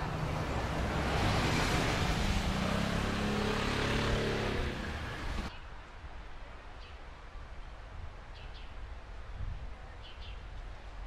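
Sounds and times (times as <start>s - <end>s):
road traffic roar: 0.0s - 5.6s.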